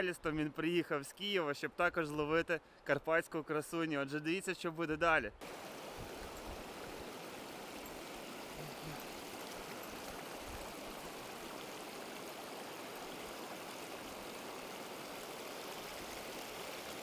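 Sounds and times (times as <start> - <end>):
river rushing over stones: 5.4 - 17.0.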